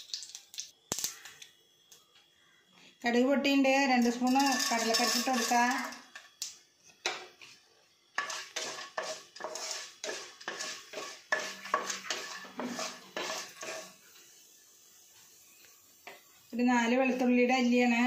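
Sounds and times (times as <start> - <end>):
food sizzling in hot oil: 0.0 - 1.3, 3.9 - 18.0
wooden spatula scraping a pan: 4.2 - 6.0, 8.2 - 14.4.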